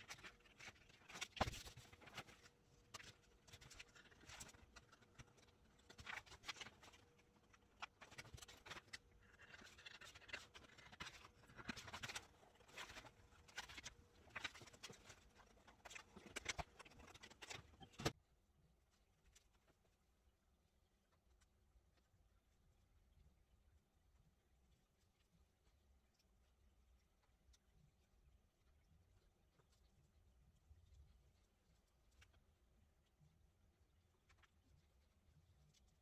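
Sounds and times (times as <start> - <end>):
paper rustling: 0.0 - 18.2.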